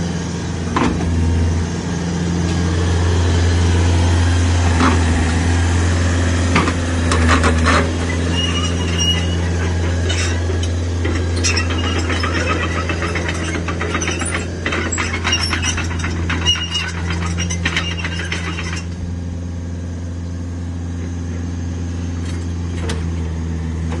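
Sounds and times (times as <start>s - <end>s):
diesel engine running: 0.0s - 24.0s
crawler tracks squealing and clattering: 6.5s - 19.1s.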